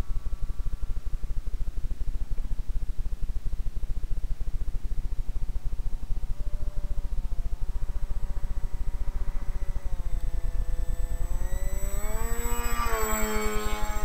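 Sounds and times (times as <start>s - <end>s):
model boat motor whining: 6.6s - 14.0s.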